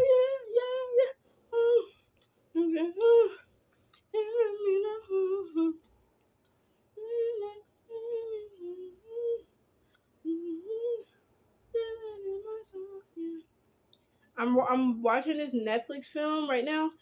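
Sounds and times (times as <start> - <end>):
person humming a tune: 0.0 - 2.0, 2.6 - 3.4, 4.1 - 5.8, 7.0 - 9.5, 10.2 - 13.4.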